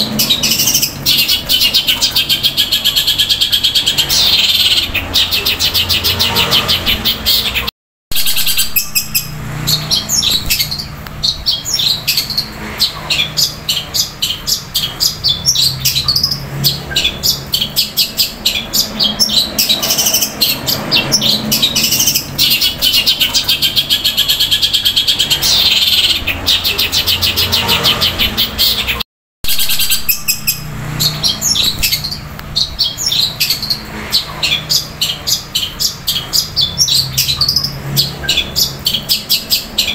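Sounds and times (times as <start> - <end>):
bird singing rapid chirps: 0.0 - 39.9.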